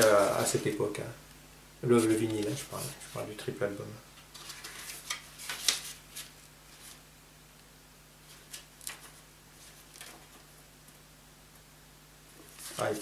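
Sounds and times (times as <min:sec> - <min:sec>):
paper rustling and crinkling: 0:00.0 - 0:00.9, 0:04.2 - 0:07.0, 0:08.2 - 0:10.6, 0:12.4 - 0:13.0.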